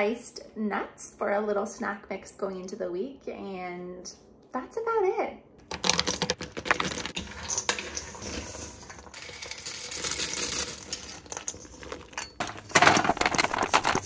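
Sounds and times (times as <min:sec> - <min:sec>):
nuts rattling in a steel bowl: 0:05.7 - 0:14.0
snack mix clattering onto a tray: 0:09.2 - 0:14.0.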